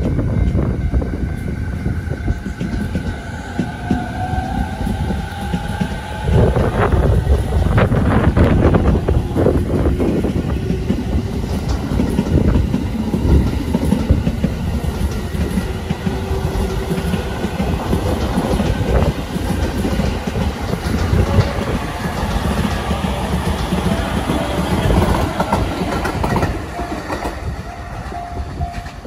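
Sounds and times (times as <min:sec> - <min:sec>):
train wheels rumbling on rail: 0:00.0 - 0:29.0.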